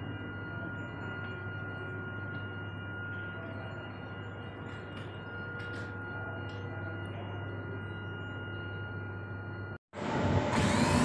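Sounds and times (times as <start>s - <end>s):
high-pitched ringing tone: 0.0s - 11.0s
belt conveyor humming: 10.0s - 11.0s.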